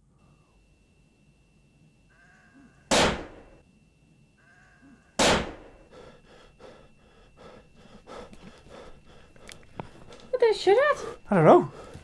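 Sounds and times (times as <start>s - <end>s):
faint bleat-like call: 2.1s - 2.9s, 4.4s - 5.2s
shotgun blasts: 2.9s - 3.5s, 5.2s - 5.7s.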